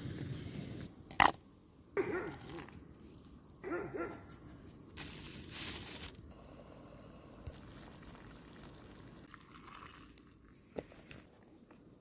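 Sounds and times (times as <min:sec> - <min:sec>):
water trickling into bowl: 0:07.5 - 0:10.6.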